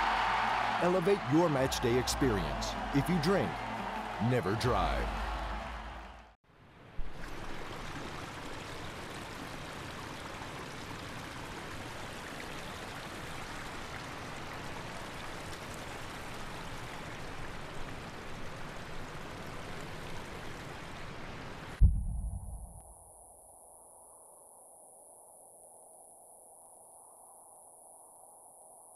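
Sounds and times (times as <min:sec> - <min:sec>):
sudden deep boom: 0:21.8 - 0:22.8.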